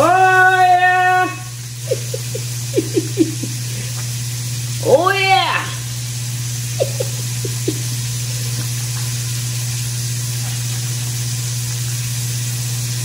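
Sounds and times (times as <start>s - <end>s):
juice dripping into bowl: 0.0s - 4.9s, 5.6s - 13.0s
low hum with hiss: 0.0s - 13.0s.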